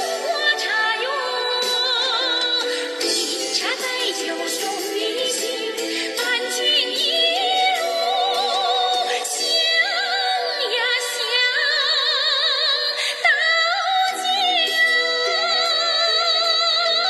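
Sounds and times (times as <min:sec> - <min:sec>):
woman singing with vibrato: 0:00.0 - 0:17.0.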